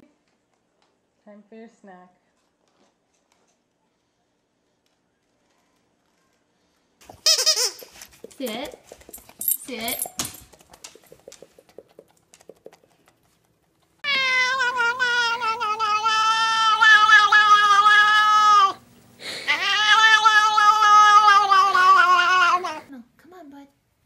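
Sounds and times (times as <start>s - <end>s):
cat yowling: 14.0s - 18.8s, 19.4s - 22.9s.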